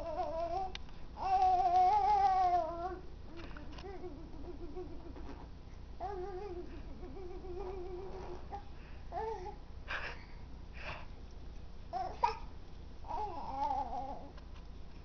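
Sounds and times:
baby cooing and babbling: 0:00.0 - 0:03.1, 0:06.0 - 0:09.6, 0:11.9 - 0:12.5, 0:13.1 - 0:14.3.

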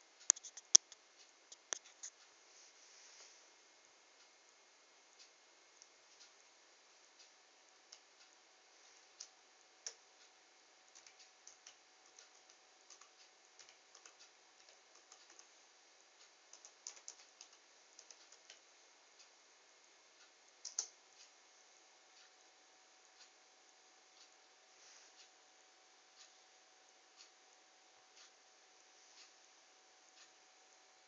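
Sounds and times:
small irregular clicks: 0:00.2 - 0:02.3, 0:05.1 - 0:06.4, 0:07.0 - 0:19.4, 0:20.2 - 0:21.4, 0:23.2 - 0:23.4, 0:28.0 - 0:28.4.

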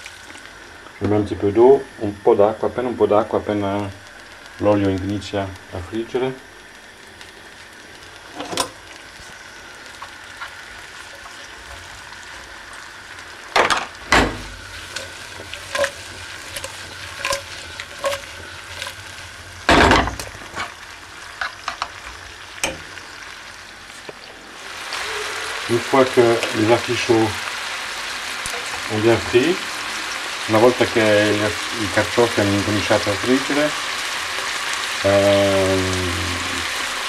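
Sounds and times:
vegetables sizzling in oil: 0:00.0 - 0:37.0.

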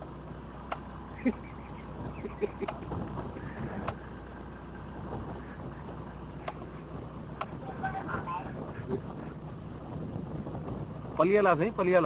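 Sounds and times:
car engine idling: 0:00.0 - 0:12.0
sharp clicks and knocks: 0:06.4 - 0:06.7.

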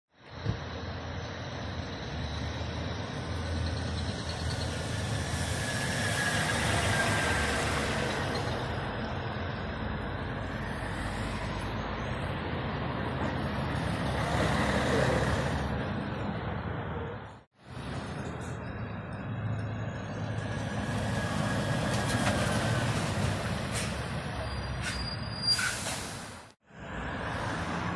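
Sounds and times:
cars passing: 0:00.2 - 0:25.3, 0:25.9 - 0:27.9
concrete mixer truck passing: 0:00.3 - 0:16.5.

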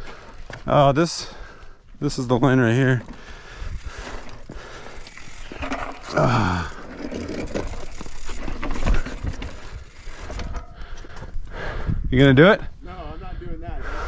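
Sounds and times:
bike scraping and knocking on rock: 0:02.2 - 0:11.3.

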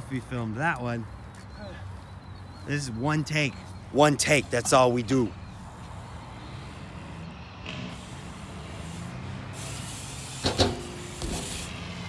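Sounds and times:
bike tyres rolling on concrete: 0:03.5 - 0:12.0.

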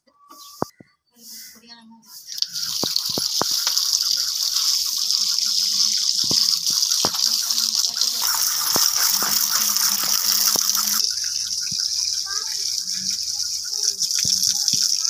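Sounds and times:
tap water gushing into colander: 0:02.3 - 0:15.0.

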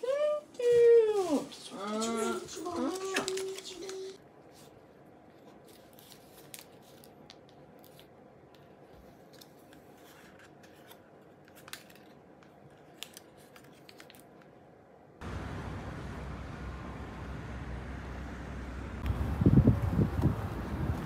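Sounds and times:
paper rustling: 0:00.6 - 0:14.5
wind rumble on microphone: 0:19.0 - 0:21.0.

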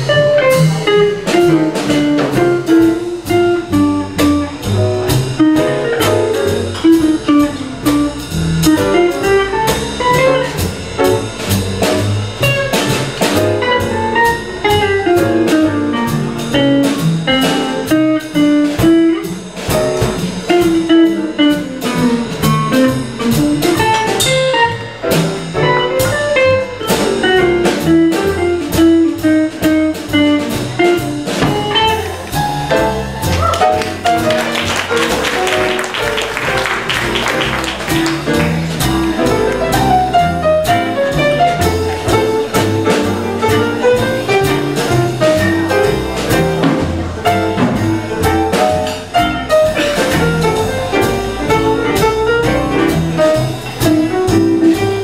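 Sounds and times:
small jazz combo playing: 0:00.0 - 0:55.0.

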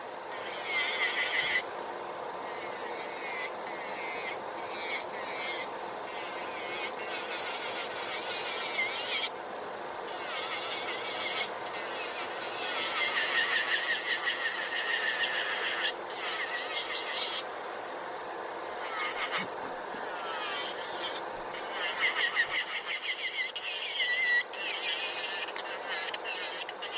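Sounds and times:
nail drill grinding: 0:02.5 - 0:09.3, 0:10.1 - 0:17.4, 0:18.7 - 0:26.9
drill bit squeal: 0:10.2 - 0:17.4, 0:20.1 - 0:26.9.

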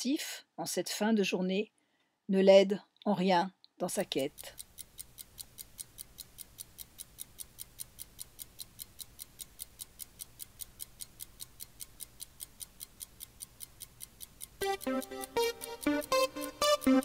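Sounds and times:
clock ticking fast: 0:03.8 - 0:17.0.

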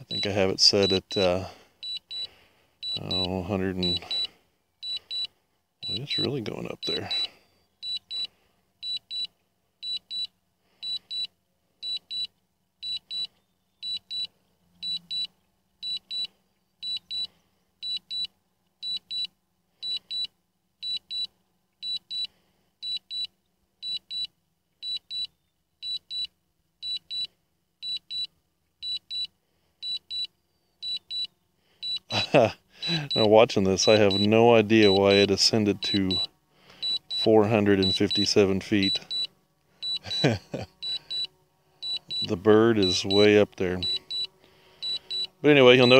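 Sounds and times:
high double beep: 0:01.8 - 0:06.1, 0:06.8 - 0:11.3, 0:29.9 - 0:45.9.

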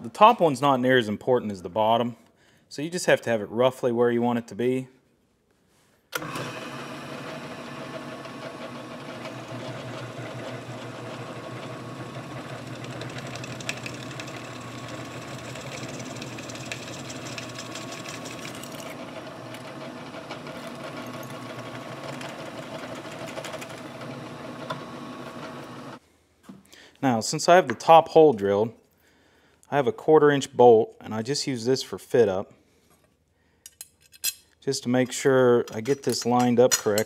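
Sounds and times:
drill press drilling steel: 0:06.2 - 0:26.0.

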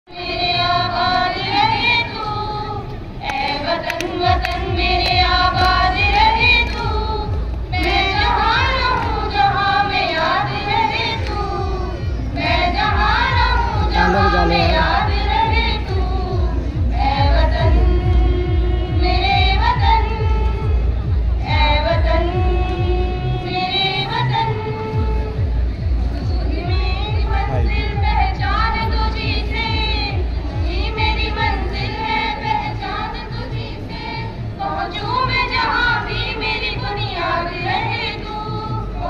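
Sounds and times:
heavy bass beat: 0:12.5 - 0:23.1.

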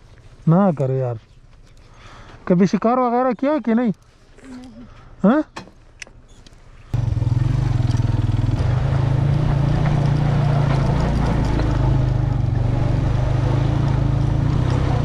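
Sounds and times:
motorcycle engine running: 0:07.0 - 0:15.0.

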